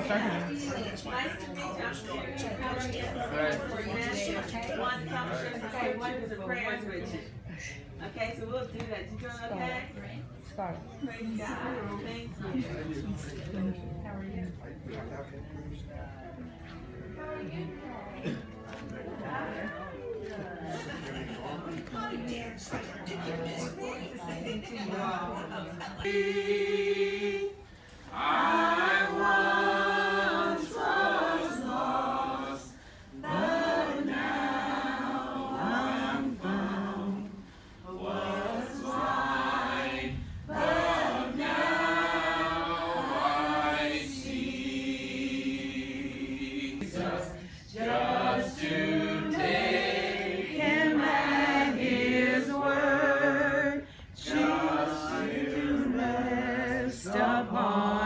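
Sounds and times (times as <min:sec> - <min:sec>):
group singing a hymn: 0:20.6 - 0:58.0.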